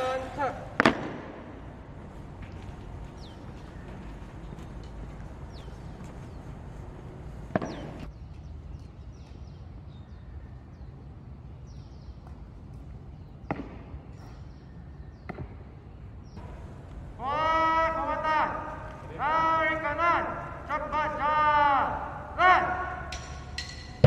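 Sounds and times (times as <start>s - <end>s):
outdoor background noise: 0.0s - 24.0s
boots stamping on pavement: 0.6s - 9.5s.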